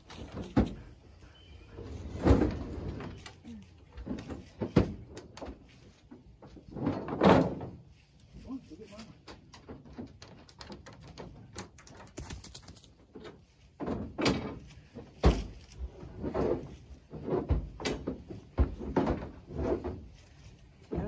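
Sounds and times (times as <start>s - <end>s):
generator dragged across truck bed: 0.0s - 9.5s, 13.4s - 21.0s
small clicks and knocks: 9.0s - 15.8s
heavy thumps and bumps: 13.8s - 21.0s.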